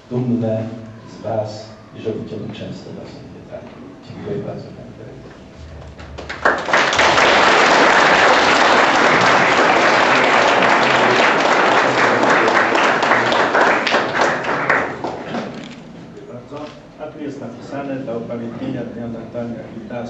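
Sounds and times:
audience applauding: 5.8 - 15.8.

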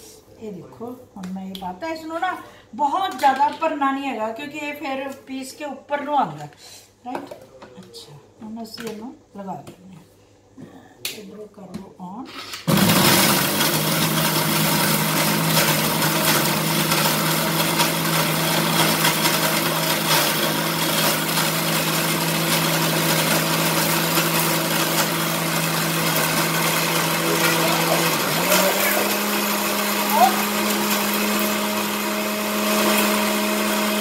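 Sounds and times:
mixer grinder motor whine: 12.6 - 34.0.

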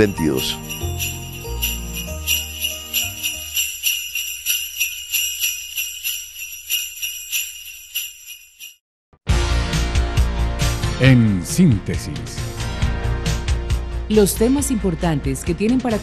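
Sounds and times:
jingle bells shaken: 0.0 - 8.8.

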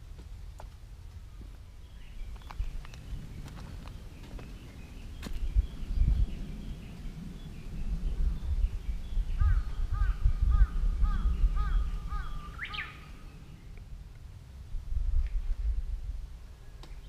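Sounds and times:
wind buffeting microphone: 0.0 - 17.0
distant bird calling: 8.3 - 13.8.

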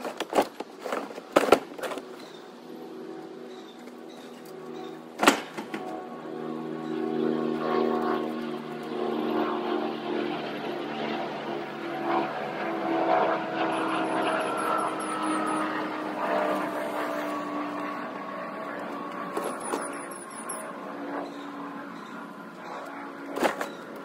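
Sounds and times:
engine droning: 0.0 - 24.0.

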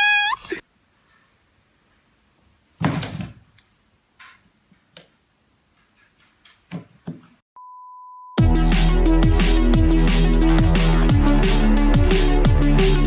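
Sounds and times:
thump on cardboard box: 2.8 - 3.4
faint knocks and rustles: 4.2 - 7.4.

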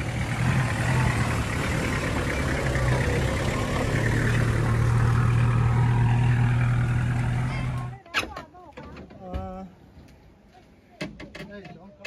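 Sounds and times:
van engine running: 0.0 - 8.0.

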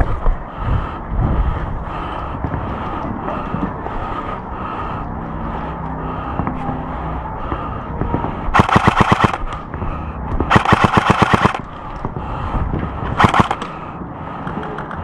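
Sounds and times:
airsoft rifle firing bursts: 8.6 - 9.5, 10.5 - 11.7, 13.2 - 13.7.

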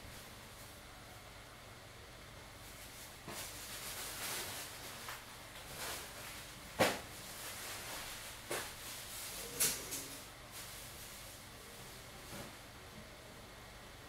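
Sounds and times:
computer cooling fans hissing: 0.0 - 14.0.

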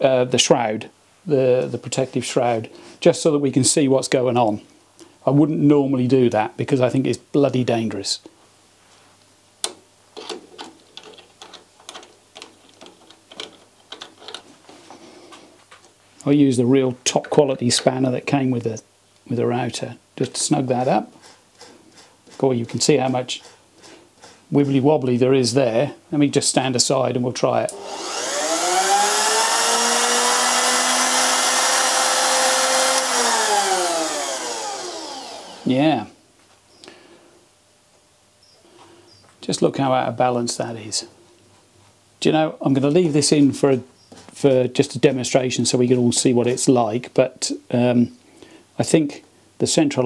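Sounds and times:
small metallic clicks and scrapes: 10.2 - 14.8
motor winding down: 27.7 - 35.7
router motor whining: 27.7 - 35.7.

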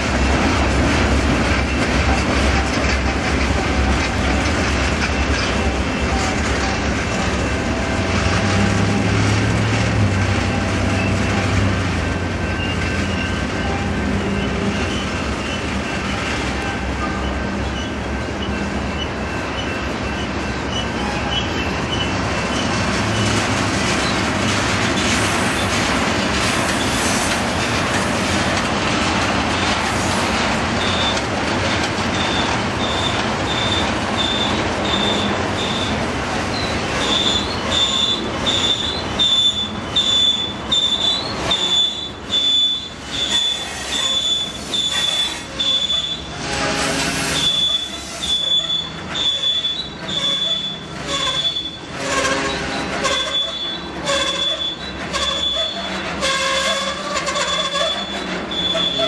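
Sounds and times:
train wheels clacking over rail joints: 0.0 - 59.0
high-pitched wheel squeals: 12.4 - 23.3, 32.1 - 59.0.

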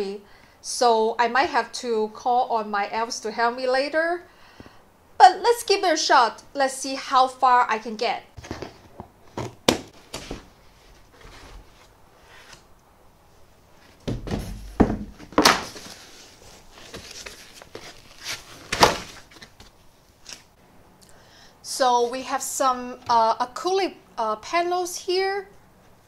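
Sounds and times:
cardboard lid scraping and thudding: 8.4 - 12.6, 14.0 - 19.5.

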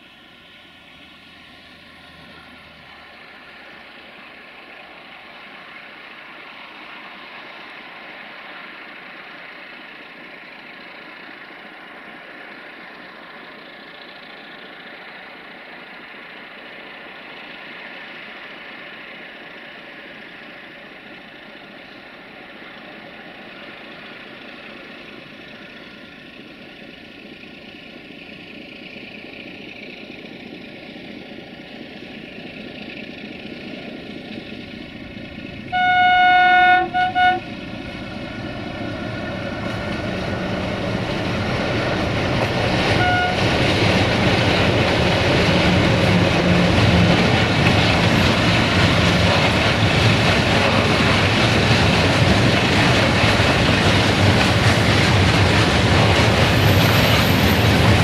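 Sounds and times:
locomotive running noise: 0.0 - 58.0
locomotive horn blasts: 35.7 - 37.5, 42.9 - 43.6.

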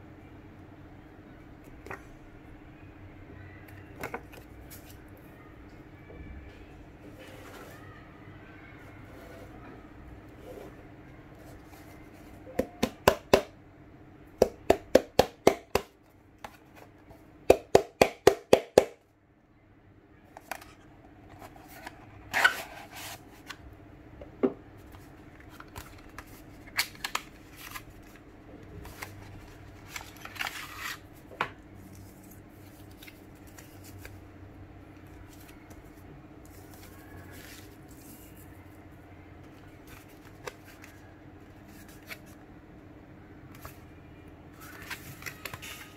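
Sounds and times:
faint steady hum: 0.0 - 17.8, 19.0 - 45.9
paper and cardboard rustling: 20.4 - 23.6, 24.8 - 31.2, 44.6 - 45.9.

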